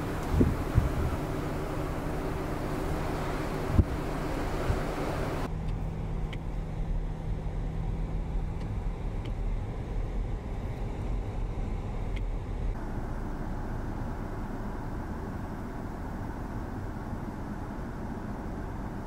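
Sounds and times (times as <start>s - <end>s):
loud blowing wind noise: 0.0s - 2.0s, 2.6s - 5.5s
car engine and road rumble: 0.0s - 19.0s
light ticks: 12.1s - 12.3s.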